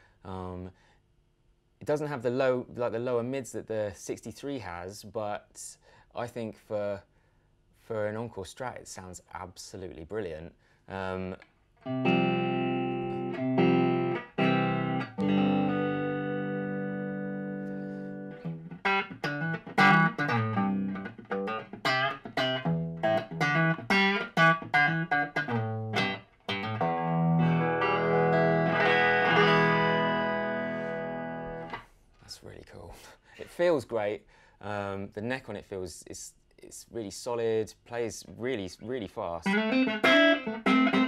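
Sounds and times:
electric guitar playing: 11.8s - 31.8s, 39.4s - 41.0s.

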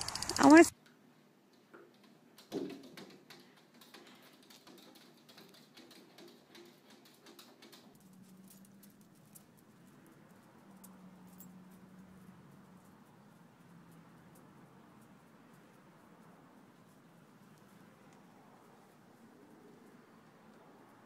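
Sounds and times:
cat claws scratching glass: 1.9s - 8.2s.

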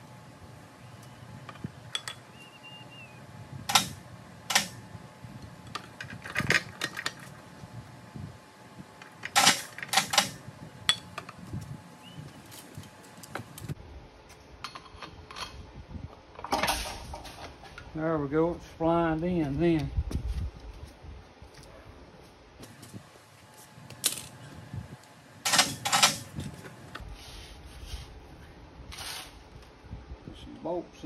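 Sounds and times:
metallic clinks and knocks: 9.3s - 11.4s.

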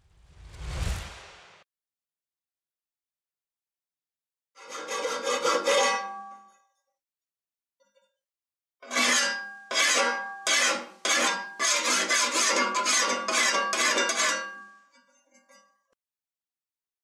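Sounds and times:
file rasping on metal blade: 4.6s - 6.0s, 8.8s - 14.6s.

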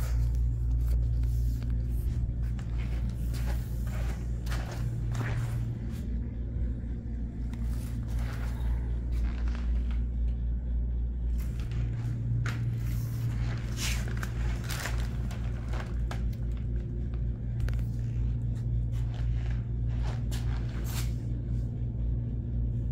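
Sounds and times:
scuffs and rustles: 0.0s - 6.3s, 7.4s - 10.2s, 11.3s - 16.8s, 17.7s - 21.4s
low hum: 0.0s - 22.9s.

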